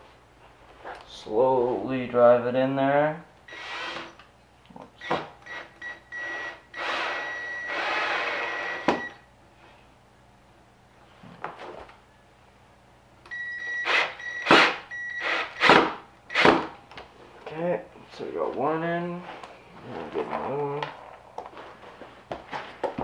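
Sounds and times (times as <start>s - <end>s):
cordless drill motor whine: 3.5s - 4.2s, 5.0s - 9.2s.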